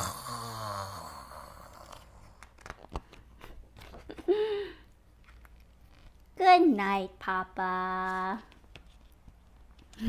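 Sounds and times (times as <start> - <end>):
short hummed vocal sound: 0.0 - 2.4
paper crackles and clicks: 1.9 - 4.2
paper page rustling: 2.2 - 4.2, 5.1 - 6.2, 8.0 - 9.9.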